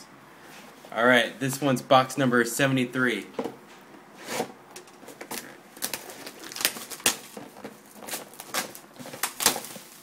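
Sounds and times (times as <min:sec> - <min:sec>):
plastic shrink wrap tearing: 0:05.1 - 0:10.0.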